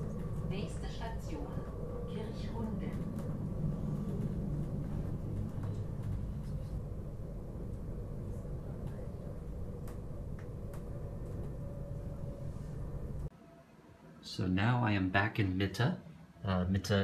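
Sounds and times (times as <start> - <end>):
train rumbling on track: 0.0 - 13.3
faint clicks: 8.8 - 12.1.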